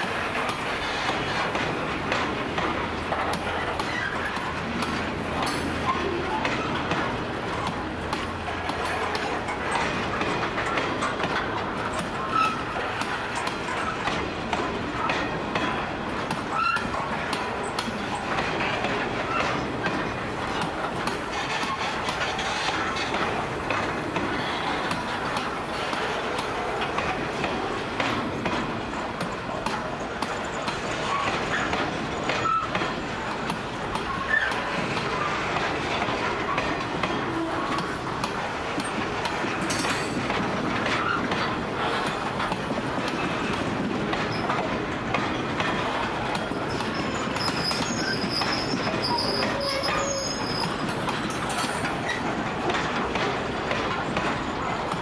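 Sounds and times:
clicks over rail joints: 0.0 - 55.0
train wheels rumbling on rail: 0.0 - 55.0
high wheel squeaks: 3.0 - 4.9, 10.9 - 14.1, 16.5 - 28.3, 30.0 - 38.2, 45.8 - 52.4.

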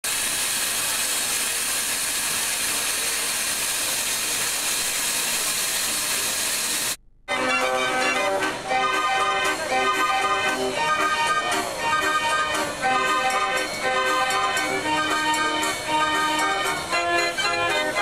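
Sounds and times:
steam engine hissing: 0.0 - 18.0
fairground organ chords: 7.3 - 18.0.

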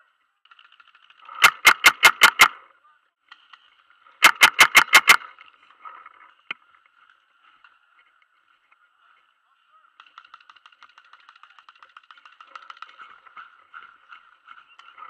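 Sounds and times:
paintball marker firing: 0.5 - 2.6, 4.2 - 5.3
sharp click: 1.4 - 2.6, 4.2 - 5.3.

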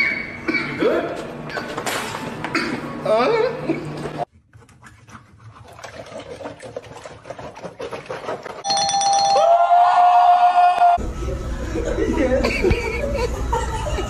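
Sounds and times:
electronic chime tone: 8.6 - 9.5.

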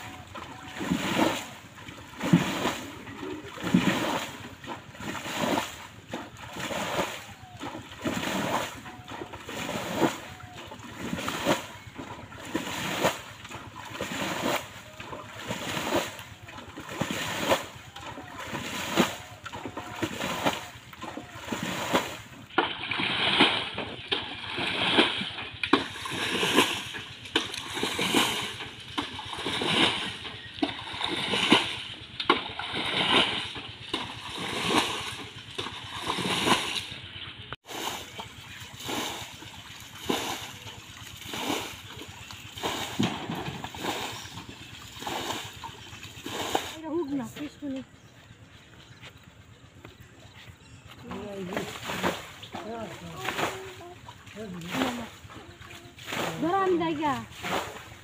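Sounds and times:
splash of thrown water: 0.0 - 37.0, 37.6 - 46.8, 51.5 - 58.0
water scooped with metal bowl: 6.4 - 37.0.

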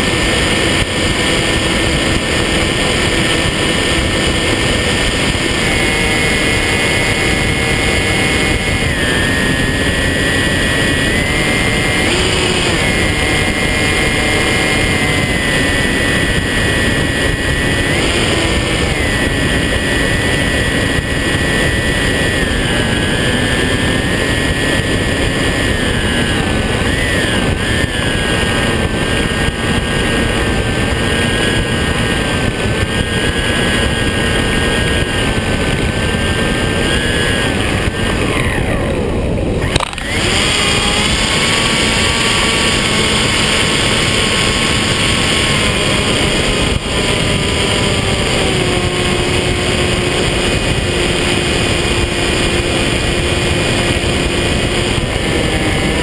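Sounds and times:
electric motor and propeller whine: 0.0 - 56.0
wind rush: 0.0 - 56.0.

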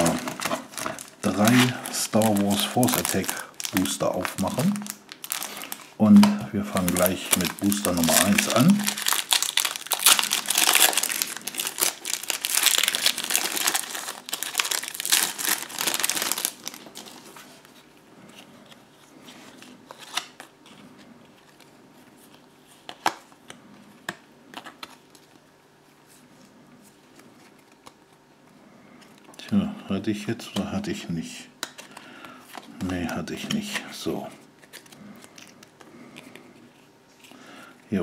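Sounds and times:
foil pack tearing and crinkling: 0.0 - 5.9, 6.8 - 17.2
cards being handled: 0.0 - 25.4.

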